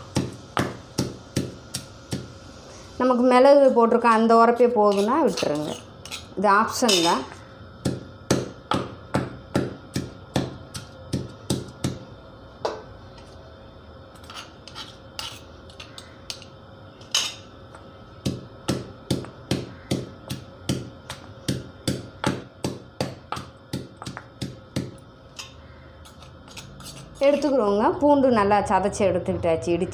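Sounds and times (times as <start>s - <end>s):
stone pestle pounding in mortar: 0.1s - 2.3s, 7.8s - 12.0s, 18.2s - 25.0s.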